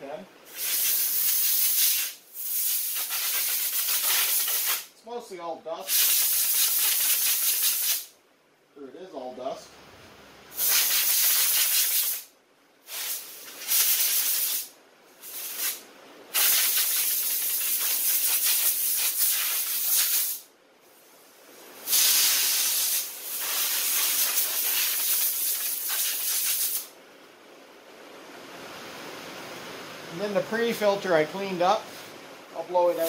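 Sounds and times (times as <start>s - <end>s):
compressed air blow gun hissing: 0.4s - 4.9s, 5.9s - 8.1s, 10.5s - 12.3s, 12.9s - 26.9s.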